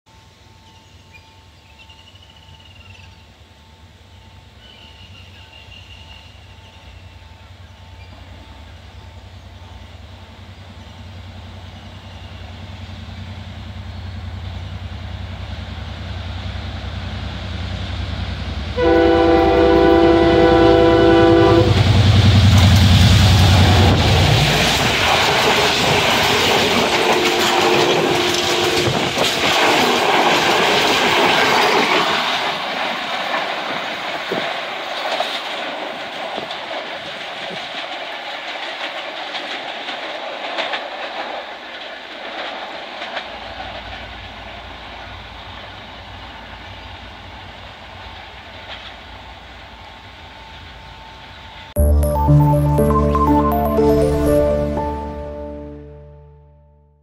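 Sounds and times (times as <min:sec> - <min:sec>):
diesel locomotive rumble: 0:03.9 - 0:31.6
train horn blast: 0:18.8 - 0:22.0, 0:26.6 - 0:29.3
train wheel clatter: 0:21.8 - 0:49.3.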